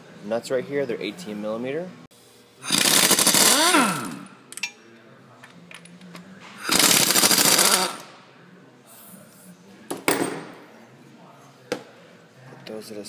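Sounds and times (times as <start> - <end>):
air impact wrench rattling: 2.6 - 4.3, 6.6 - 8.2
impact wrench spinning whine: 2.6 - 4.3, 6.6 - 8.1.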